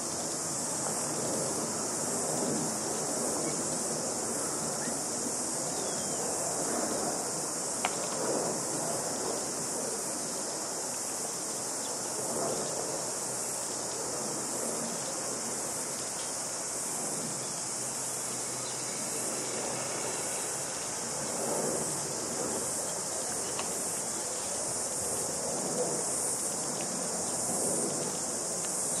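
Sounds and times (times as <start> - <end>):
insects chorus: 0.0 - 29.0
distant city hum: 14.4 - 27.1.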